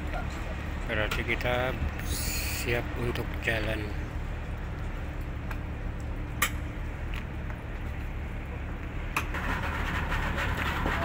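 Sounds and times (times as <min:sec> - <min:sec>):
outboard motor idling: 0:09.4 - 0:11.0.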